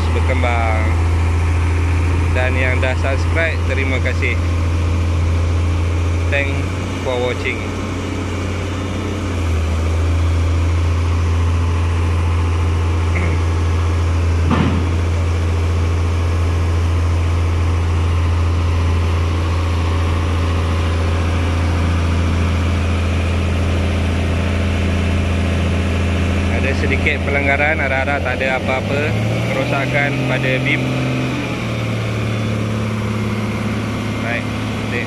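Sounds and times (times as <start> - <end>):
diesel engine idling: 0.0 - 35.0
short knock: 14.4 - 15.1.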